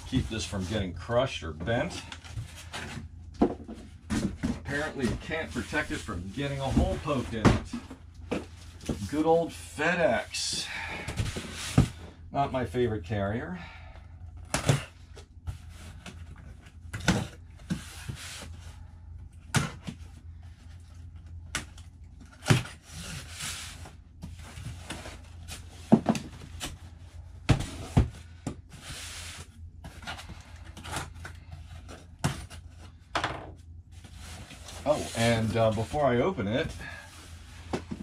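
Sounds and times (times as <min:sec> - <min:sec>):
steady low hum: 0:00.0 - 0:38.0
cardboard scraping and rubbing: 0:04.1 - 0:07.5, 0:34.0 - 0:36.6.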